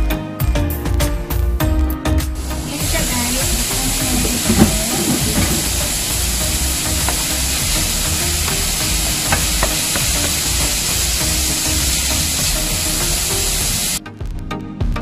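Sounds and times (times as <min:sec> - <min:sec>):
meat and onion sizzling in a pan: 0:02.4 - 0:14.0
wooden spoon scraping a pan: 0:02.7 - 0:12.3
spoon tapping on a pan: 0:06.8 - 0:10.7.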